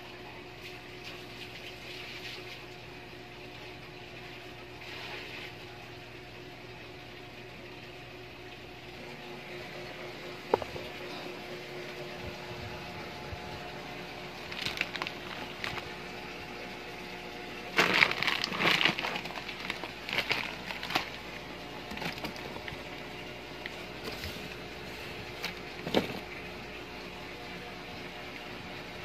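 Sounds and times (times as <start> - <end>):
steady low hum: 0.0 - 29.0
plastic parts clattering in a box: 14.5 - 15.8, 17.8 - 21.2, 25.4 - 26.3.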